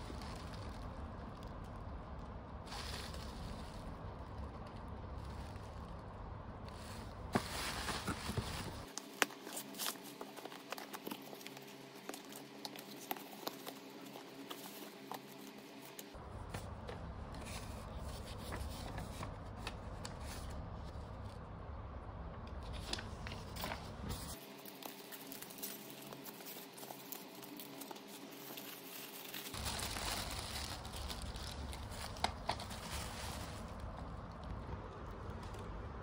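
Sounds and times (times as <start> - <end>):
polystyrene foam scraping: 0.0 - 1.5, 2.6 - 5.9, 6.7 - 16.2, 23.4 - 34.0
plastic packaging crinkling: 0.0 - 16.2, 22.7 - 34.6.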